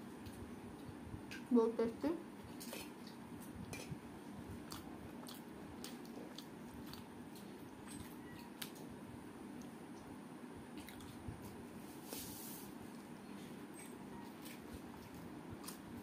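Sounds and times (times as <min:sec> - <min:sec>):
steady low hum: 0:00.0 - 0:16.0
mouth chewing: 0:04.5 - 0:08.8, 0:10.7 - 0:11.2
fingers squishing food: 0:04.5 - 0:08.9.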